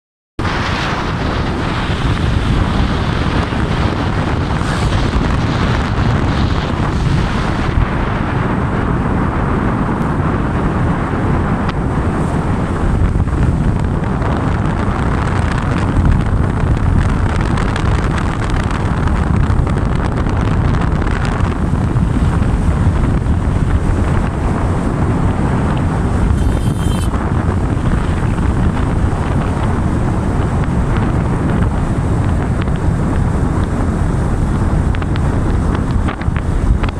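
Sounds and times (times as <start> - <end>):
road noise: 0.4 - 36.9
wind buffeting microphone: 0.4 - 36.9
motorcycle engine: 23.5 - 30.8.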